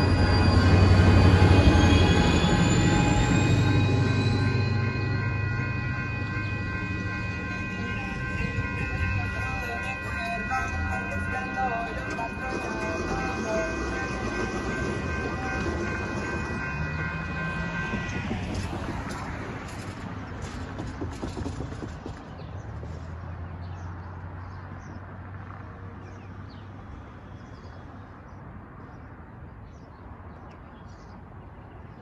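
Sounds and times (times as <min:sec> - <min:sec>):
railroad crossing bell ringing: 0:00.0 - 0:20.1
train rumbling: 0:00.0 - 0:23.2
street traffic: 0:00.0 - 0:32.0
birds chirping: 0:00.1 - 0:18.7.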